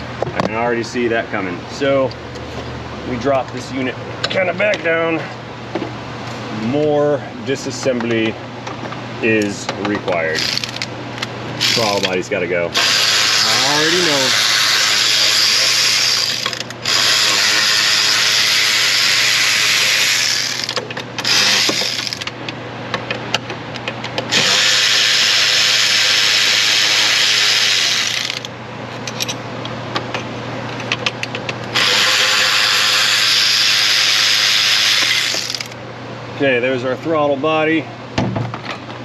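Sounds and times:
electric ratchet running: 10.4 - 10.9, 11.6 - 12.1, 12.8 - 22.3, 24.3 - 28.5, 31.7 - 35.8.

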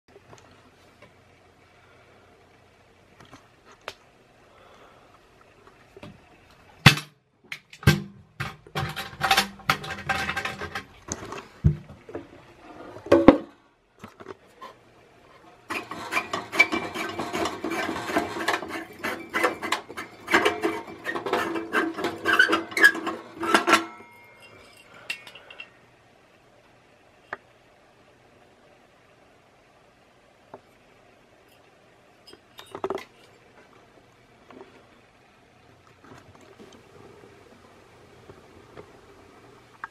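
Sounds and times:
glass bulb scraping and clinking: 15.8 - 25.8.

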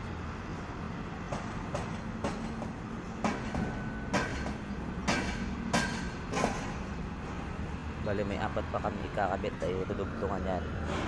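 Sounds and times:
metal knocks and clanks: 1.3 - 6.9.

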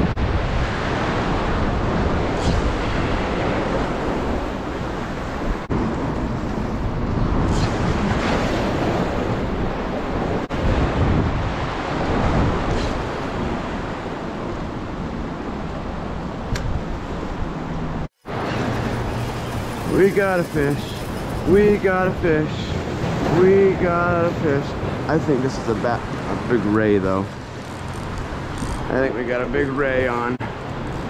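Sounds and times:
wind rushing across microphone: 0.0 - 31.0
water washing on shoreline: 18.2 - 25.1.

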